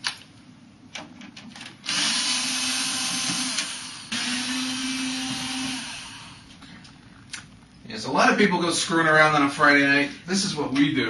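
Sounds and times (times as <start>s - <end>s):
power drill motor running: 1.8s - 6.5s.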